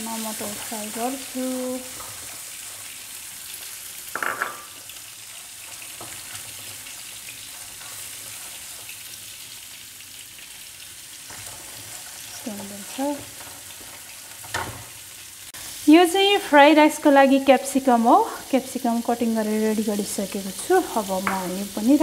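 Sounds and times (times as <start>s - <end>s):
vegetables sizzling in frying pan: 0.0s - 22.0s.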